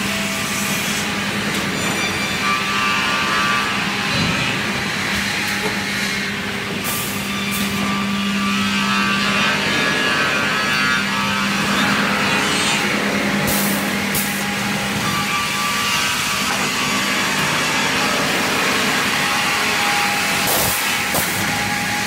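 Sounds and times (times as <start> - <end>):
sawmill machinery humming: 0.0 - 22.0
compressed air hisses: 13.5 - 14.4, 20.4 - 21.4.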